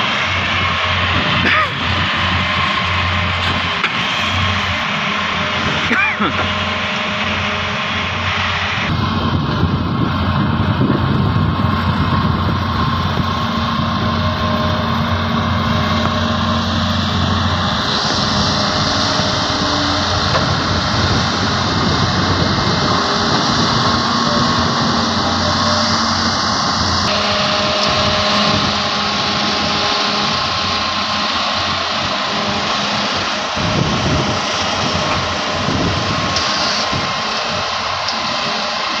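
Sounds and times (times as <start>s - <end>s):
excavator diesel engines running: 0.0s - 39.0s.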